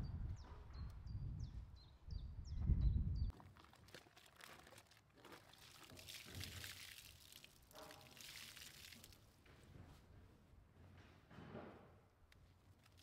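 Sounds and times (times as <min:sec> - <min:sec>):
water dripping: 0:03.3 - 0:09.2
water sloshing in a bucket: 0:03.3 - 0:09.4.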